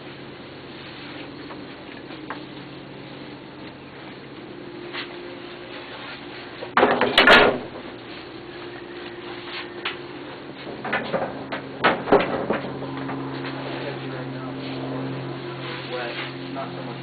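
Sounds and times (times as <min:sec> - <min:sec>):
faint steady hum: 0:00.0 - 0:17.0
dry leaves crackling and rustling: 0:12.7 - 0:17.0.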